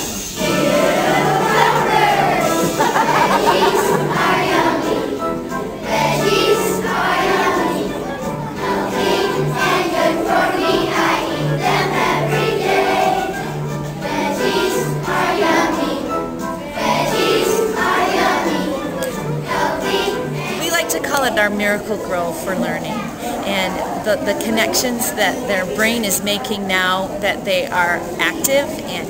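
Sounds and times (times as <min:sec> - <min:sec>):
instrumental accompaniment with bass: 0:00.0 - 0:20.6
children singing: 0:00.0 - 0:20.7.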